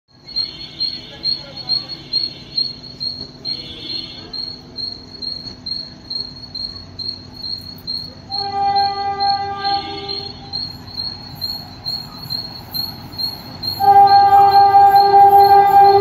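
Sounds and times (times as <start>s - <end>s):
insect chirping: 0.1s - 16.0s
high whine: 1.9s - 16.0s
locomotive horn: 8.3s - 10.5s, 13.7s - 16.0s.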